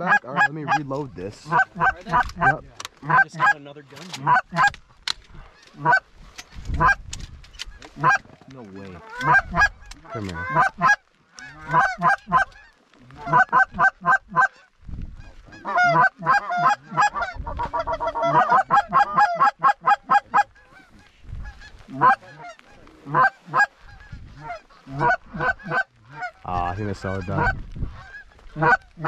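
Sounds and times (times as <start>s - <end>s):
goose honking and clucking: 0.0s - 6.1s, 6.7s - 29.0s.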